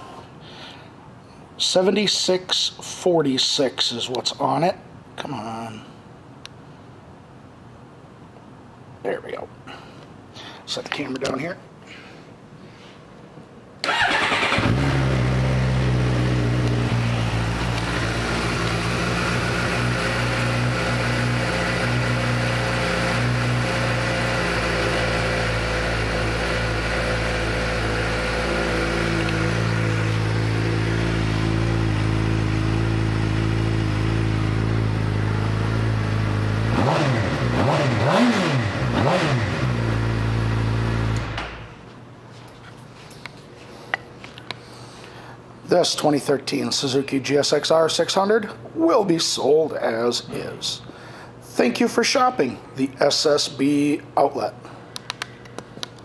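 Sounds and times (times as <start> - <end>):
motorcycle engine idling and revving: 13.9 - 41.4.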